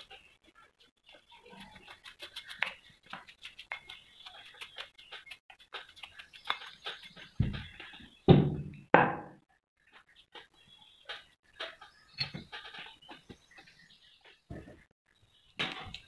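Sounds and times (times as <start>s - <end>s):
thuds: 7.4s - 9.3s.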